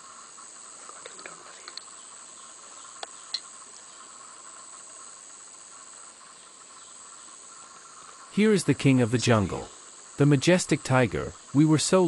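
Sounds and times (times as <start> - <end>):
forest insects buzzing: 0.0 - 12.0
faint clicks: 0.8 - 1.9.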